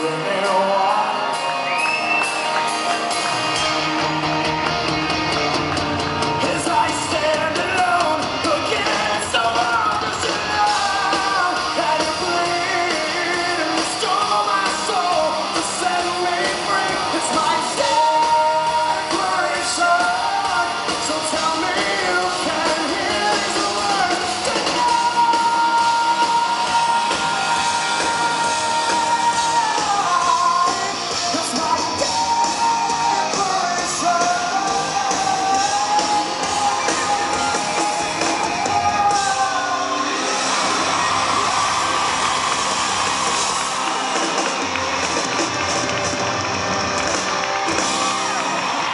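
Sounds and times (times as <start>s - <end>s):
man singing: 0.0s - 1.6s, 6.2s - 40.2s
amplified electric guitars: 0.0s - 48.9s.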